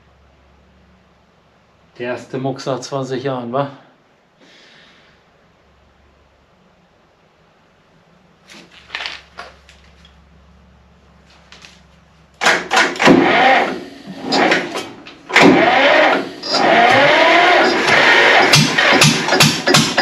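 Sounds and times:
diesel engine cranking: 12.4s - 20.0s.

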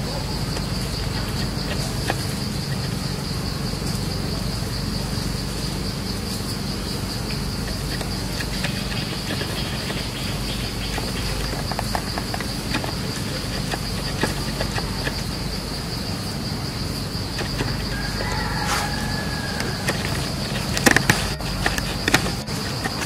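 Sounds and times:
high-pitched insect drone: 0.0s - 23.0s
light clicks and rustles: 5.5s - 16.1s, 17.2s - 23.0s.

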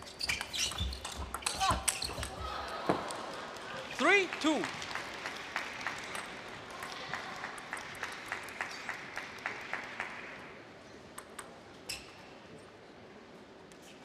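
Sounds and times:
rhythmic clapping: 3.2s - 10.4s.

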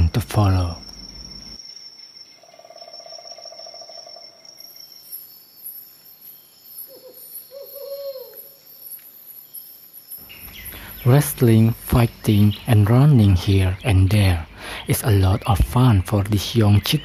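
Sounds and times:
high-pitched insect trilling: 0.0s - 13.4s.

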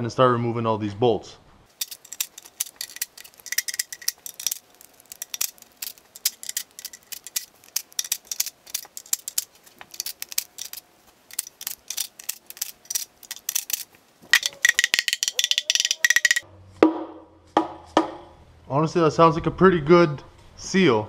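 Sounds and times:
hand ratchet clicking: 1.7s - 16.4s.

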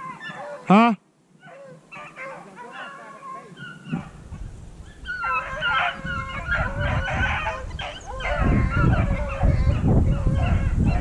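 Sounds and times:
hounds baying: 0.0s - 0.8s, 1.4s - 11.0s
wind rumble on microphone: 3.6s - 11.0s.

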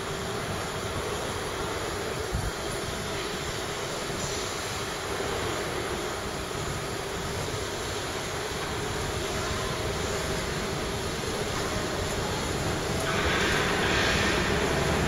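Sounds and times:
railway car rumbling: 0.0s - 15.0s.

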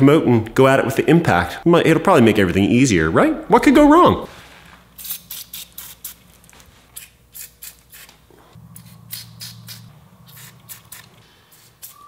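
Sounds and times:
aerosol can spraying hissing squirts: 8.8s - 12.0s.

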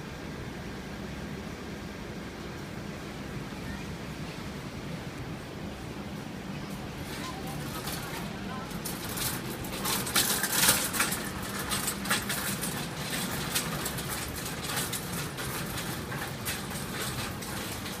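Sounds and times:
air conditioner and fans humming: 0.0s - 18.0s
sharp clicks and rustles: 7.0s - 18.0s.

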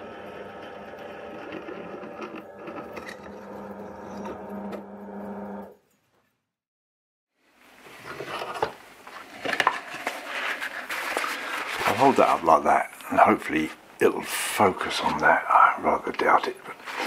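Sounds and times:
drill press motor hum: 0.0s - 5.7s.

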